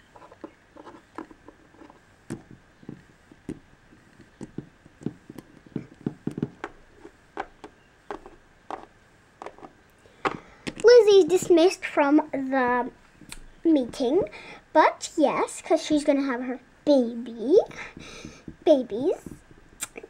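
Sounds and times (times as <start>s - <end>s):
plastic figurines tapping on table: 4.3s - 6.8s.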